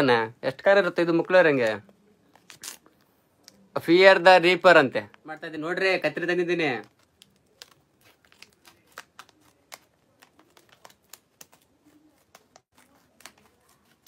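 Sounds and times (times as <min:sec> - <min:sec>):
packaging crinkling: 0:06.2 - 0:14.0
scissors snipping packaging: 0:06.6 - 0:14.0.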